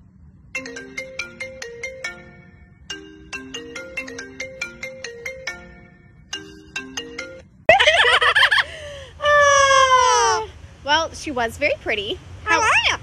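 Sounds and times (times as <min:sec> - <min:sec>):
phone ringtone chiming melody: 0:00.6 - 0:07.7.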